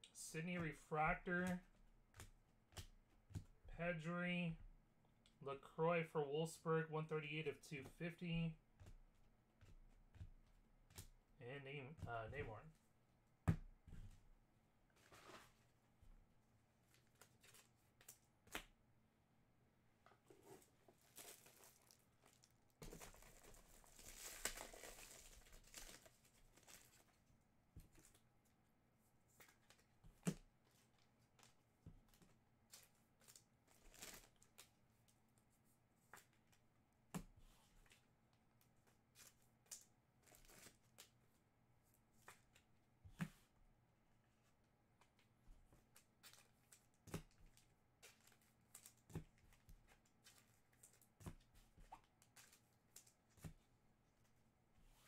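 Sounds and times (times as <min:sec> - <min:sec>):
wrapper tearing and crinkling: 0:21.0 - 0:27.0.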